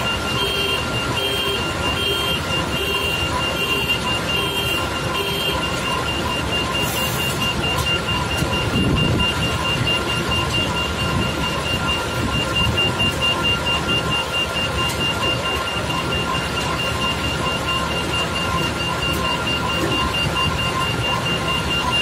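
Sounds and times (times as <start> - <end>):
electronic warning beeper: 0.0 - 22.0
heavy machine engine running: 0.0 - 22.0.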